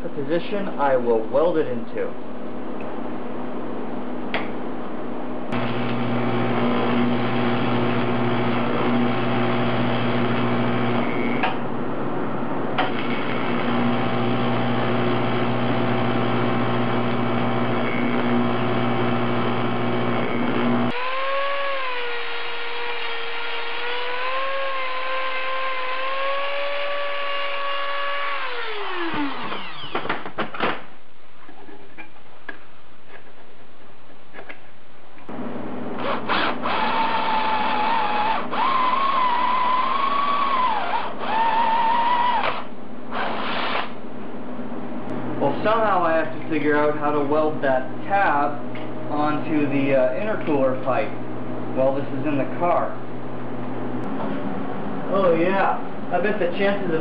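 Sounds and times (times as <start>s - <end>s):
welder arc buzzing: 5.5s - 11.6s, 12.8s - 30.4s, 36.0s - 44.0s.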